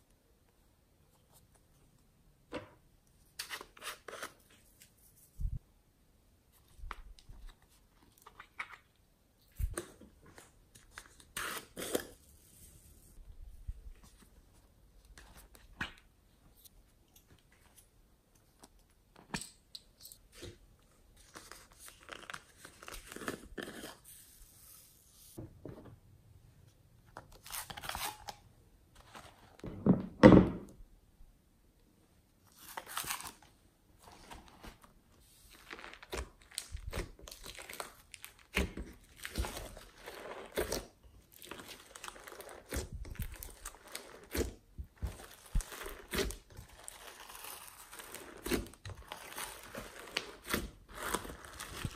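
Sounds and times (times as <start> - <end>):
squishing slime and clay: 32.4 - 51.9.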